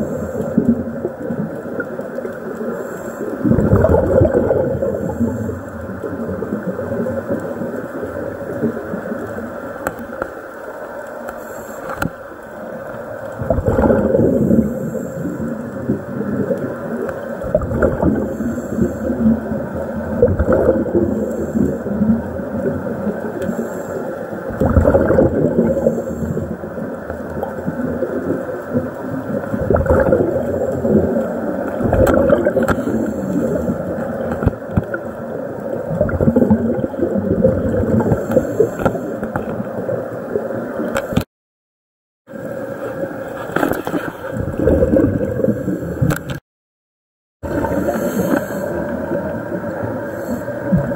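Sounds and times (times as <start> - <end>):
muffled underwater churning: 0.0 - 41.3, 42.3 - 46.4, 47.4 - 50.9.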